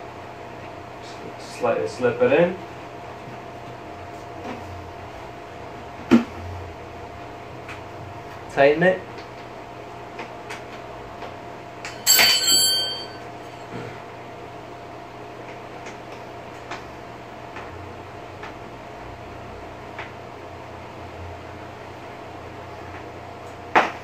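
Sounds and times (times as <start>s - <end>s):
metallic clink ringing: 11.8s - 13.6s.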